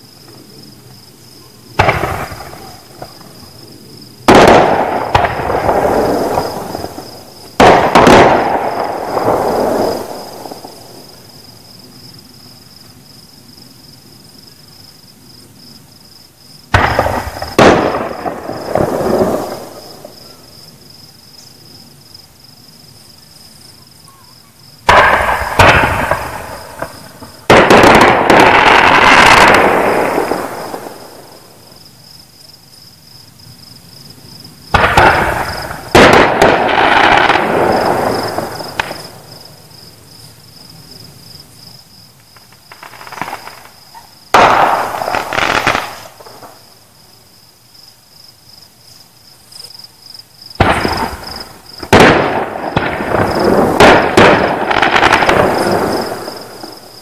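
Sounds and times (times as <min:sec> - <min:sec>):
crickets chirping: 0:00.0 - 0:57.0
fireworks bursting: 0:01.6 - 0:12.4, 0:16.6 - 0:20.6, 0:24.8 - 0:31.9, 0:34.6 - 0:39.8, 0:42.2 - 0:46.8, 0:50.4 - 0:57.0.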